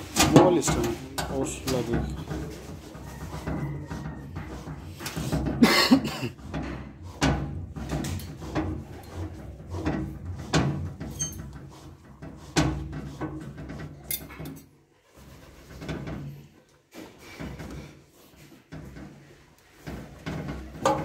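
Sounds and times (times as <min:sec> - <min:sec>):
plastic knocks and scraping: 0:00.0 - 0:21.0.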